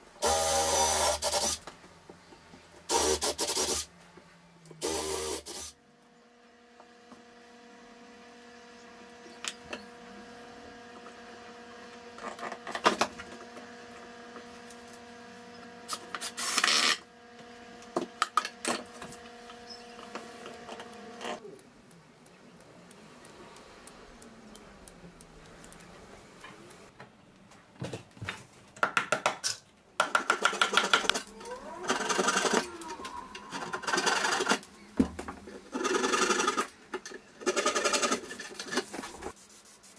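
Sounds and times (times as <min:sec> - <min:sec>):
machine hum: 0:00.0 - 0:26.9
tools and wood knocking: 0:28.8 - 0:31.3.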